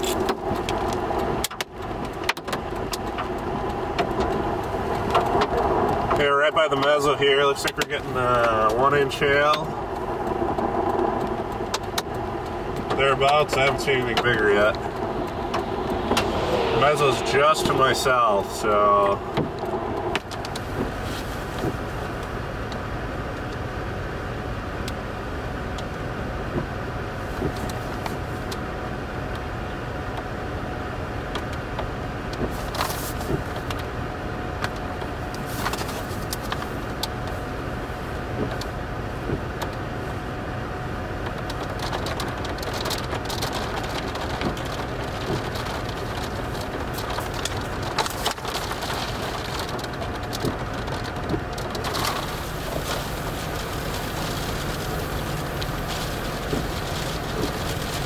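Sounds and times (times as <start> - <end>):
rain striking vehicle: 0.0 - 58.0
low rumble: 8.1 - 23.4, 40.7 - 58.0
hail on vehicle roof: 34.6 - 40.0, 40.9 - 58.0.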